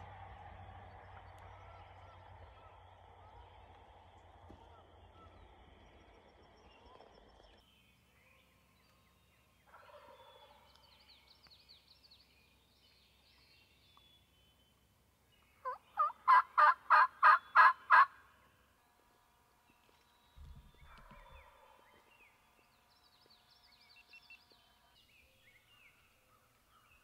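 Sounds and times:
turkey gobbling: 9.7s - 10.4s, 15.6s - 18.2s.

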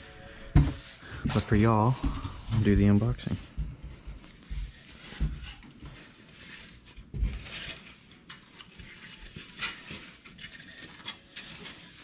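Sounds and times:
protective wrapping rustling: 4.3s - 12.0s.

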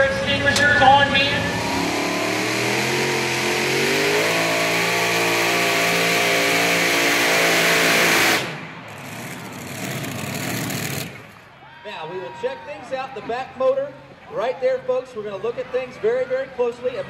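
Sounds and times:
pulling tractor engines at full throttle: 0.0s - 11.6s.

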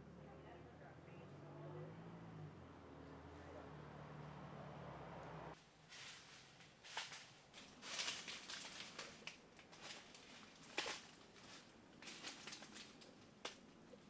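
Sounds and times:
leaves and twigs crackling: 5.5s - 14.0s
footsteps crunching through dry leaves: 5.7s - 13.3s.

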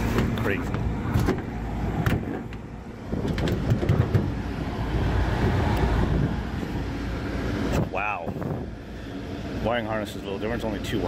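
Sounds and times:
metal panel clicks and knocks: 1.1s - 4.4s.

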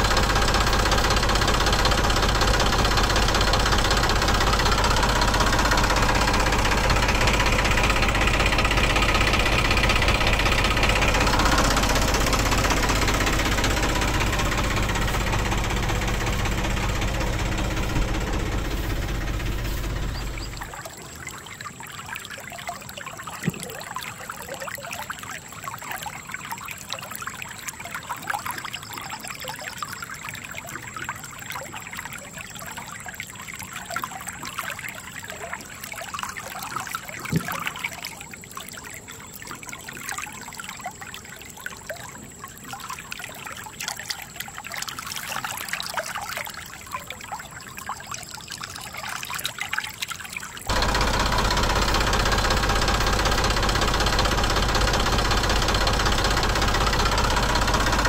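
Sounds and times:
tractor engine running: 0.0s - 20.8s, 50.7s - 58.0s
stream trickling over stones: 0.0s - 50.7s.

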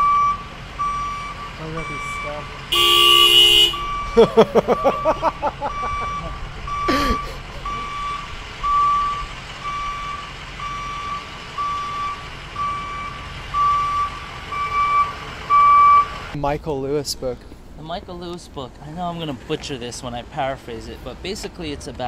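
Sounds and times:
reversing alarm beeping: 0.0s - 16.2s.

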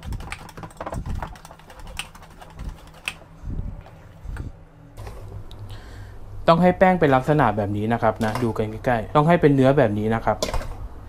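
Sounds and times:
whisk clicking against metal bowl: 0.0s - 3.2s.

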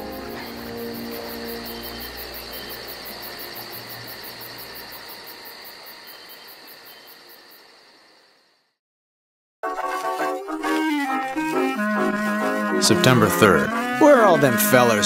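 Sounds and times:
music cue: 0.0s - 4.1s, 9.6s - 15.0s.

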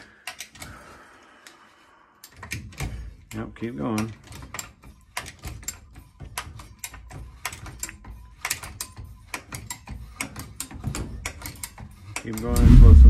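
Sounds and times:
tube bender clicking and creaking: 2.2s - 12.6s.

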